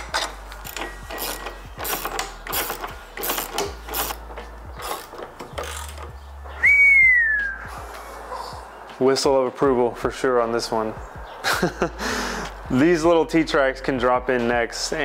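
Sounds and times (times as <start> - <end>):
screwdriver rasping: 0.1 - 6.2
man whistling: 6.6 - 7.8.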